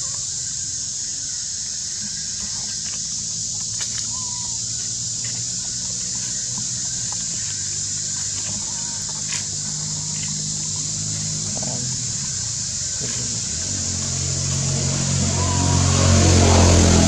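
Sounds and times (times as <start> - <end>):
cicadas droning: 0.0 - 17.0
low hum: 8.2 - 17.0.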